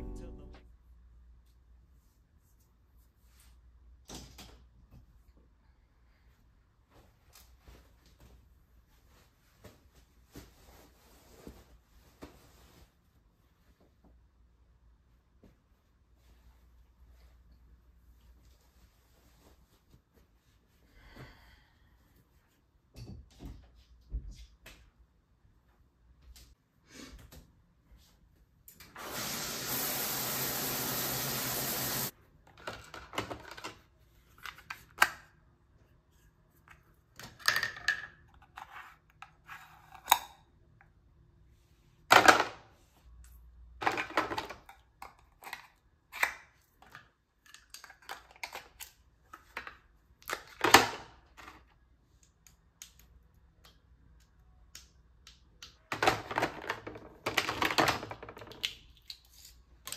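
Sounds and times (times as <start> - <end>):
shower water running: 29.0 - 32.1.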